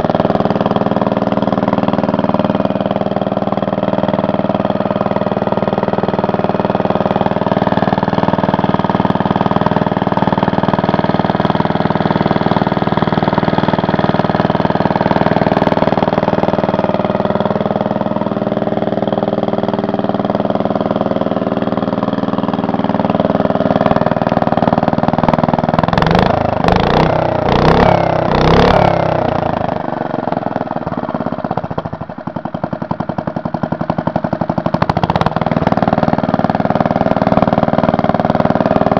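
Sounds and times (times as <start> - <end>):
single-cylinder engine running: 0.0 - 38.9.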